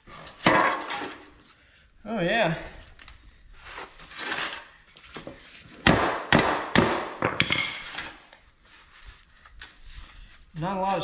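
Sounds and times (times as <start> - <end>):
sharp metal knocks: 5.8 - 7.9.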